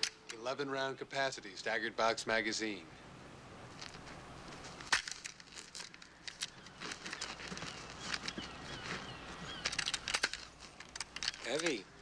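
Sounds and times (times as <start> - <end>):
rustles: 0.0 - 12.0
rifle handling clicks: 4.8 - 7.4, 9.5 - 11.8.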